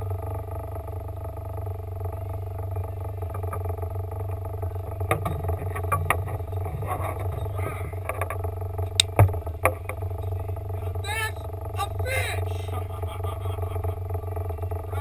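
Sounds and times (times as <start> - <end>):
outboard motor running: 0.0 - 15.0
gear knocking and clattering: 1.5 - 10.8.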